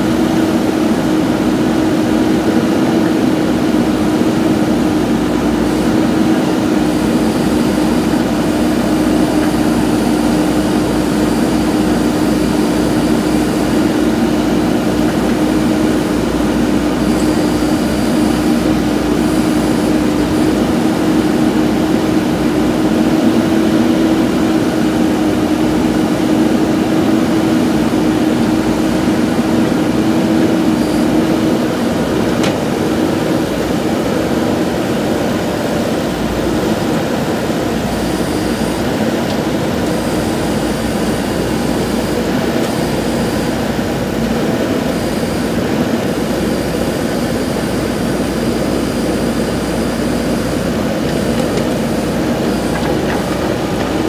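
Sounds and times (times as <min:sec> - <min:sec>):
diesel engine humming: 0:00.0 - 0:54.0.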